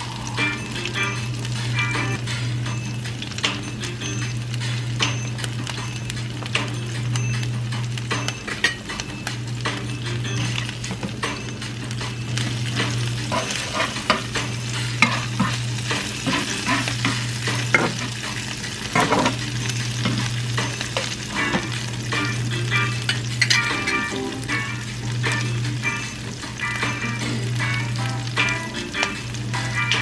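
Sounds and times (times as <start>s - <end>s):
food sizzling in oil: 0.0s - 30.0s
spatula scraping and tapping pan: 12.9s - 18.2s, 18.9s - 19.4s.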